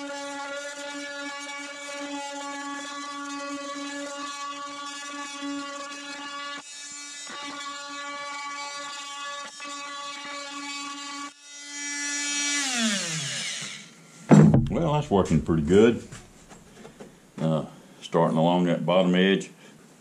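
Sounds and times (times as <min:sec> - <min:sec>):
oscillating multi-tool cutting wood: 0:00.0 - 0:14.4.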